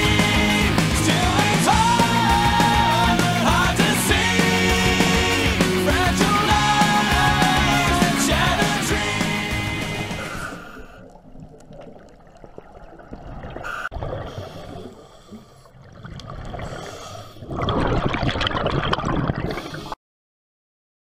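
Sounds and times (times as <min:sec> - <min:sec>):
underwater bubbles gurgling: 0:10.0 - 0:20.0.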